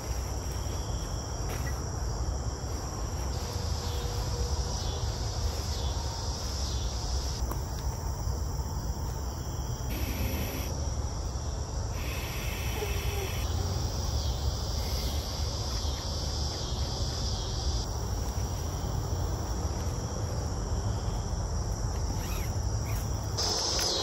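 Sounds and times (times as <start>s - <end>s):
crickets trilling: 0.0s - 24.0s
high insect buzzing: 9.3s - 10.8s, 11.9s - 16.0s.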